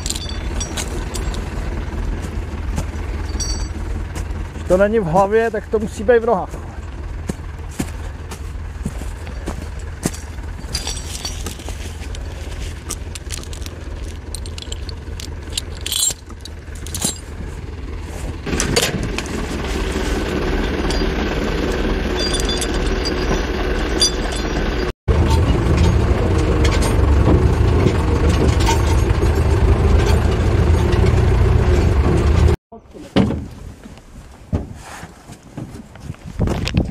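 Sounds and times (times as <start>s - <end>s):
metal clinks and rattles: 0.0s - 1.8s, 3.2s - 3.9s, 9.3s - 17.6s, 20.2s - 27.1s, 27.8s - 31.2s
tractor diesel engine running: 0.0s - 32.6s.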